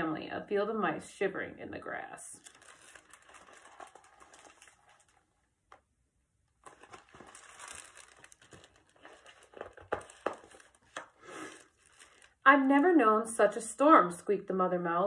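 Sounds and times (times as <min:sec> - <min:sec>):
paper pages rustling: 0:02.4 - 0:05.8, 0:06.6 - 0:12.8.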